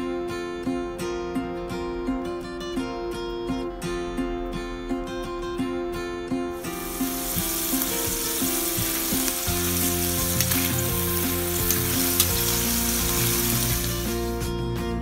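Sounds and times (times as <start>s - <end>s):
food sizzling in hot fat: 6.6s - 14.5s.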